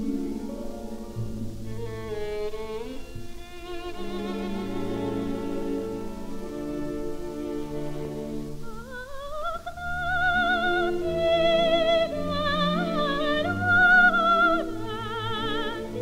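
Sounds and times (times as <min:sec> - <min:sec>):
orchestra playing: 0:00.0 - 0:08.9
soprano singing: 0:00.0 - 0:16.0.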